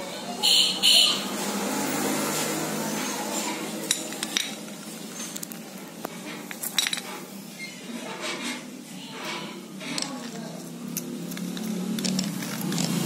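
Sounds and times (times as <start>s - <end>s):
metal parts clinking: 3.8s - 7.3s, 8.0s - 13.0s.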